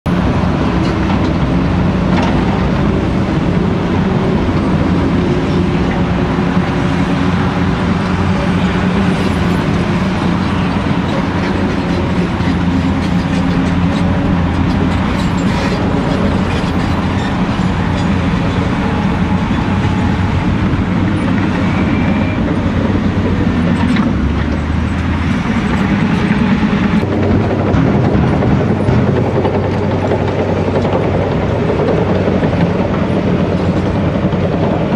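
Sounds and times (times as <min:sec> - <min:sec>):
dump truck driving: 0:00.1 - 0:34.9
excavator engine working under load: 0:00.1 - 0:34.9.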